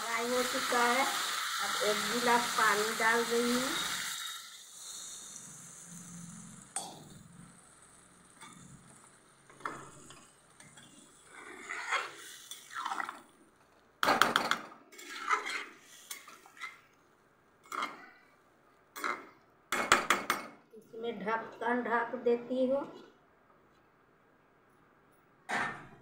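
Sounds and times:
spatula scraping and clinking pan: 9.5s - 13.1s, 14.4s - 16.8s.

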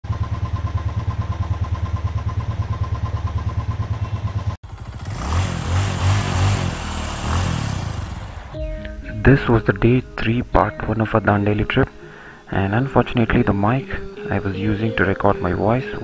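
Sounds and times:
motorcycle engine idling: 0.0s - 8.6s.

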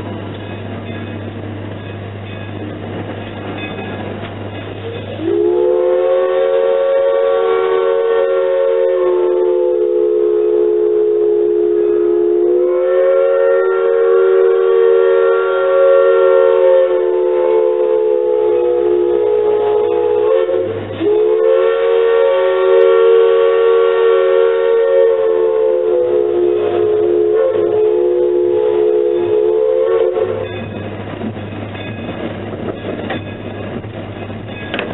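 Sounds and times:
steam locomotive whistle: 4.8s - 30.7s.

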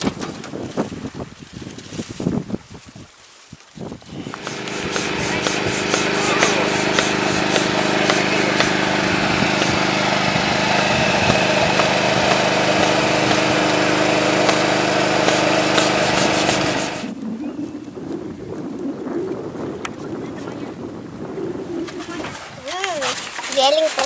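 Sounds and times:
engine running steadily: 4.1s - 17.1s.

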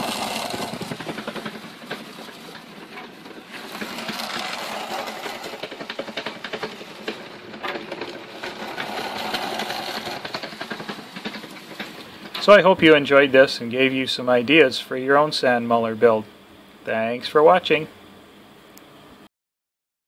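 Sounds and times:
plow scraping barrel side: 0.0s - 12.7s
sand muller rattling: 0.0s - 16.2s.

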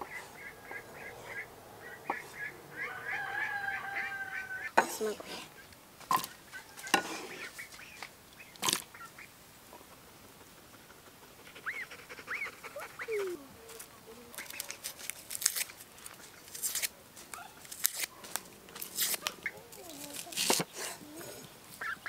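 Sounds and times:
onion skin crackling: 13.6s - 20.8s.

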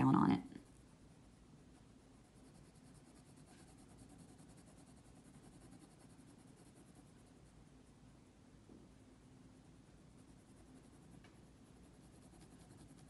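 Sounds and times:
pencil scratching on paper: 1.8s - 7.6s, 10.2s - 13.0s.

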